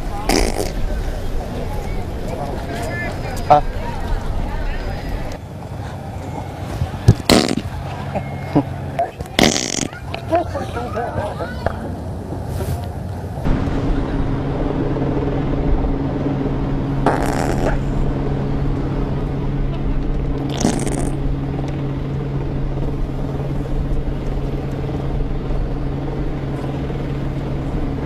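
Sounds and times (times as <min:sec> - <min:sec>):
low motor hum: 0:13.4 - 0:28.0.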